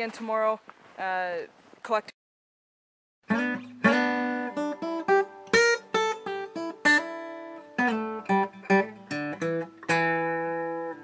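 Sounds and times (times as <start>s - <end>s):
acoustic guitar melody: 3.3s - 11.0s.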